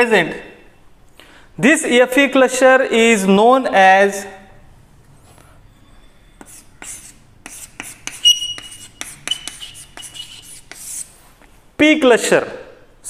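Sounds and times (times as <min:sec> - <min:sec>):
chalk squeaking: 0:05.7 - 0:11.3
chalk tapping and scraping: 0:06.4 - 0:11.6.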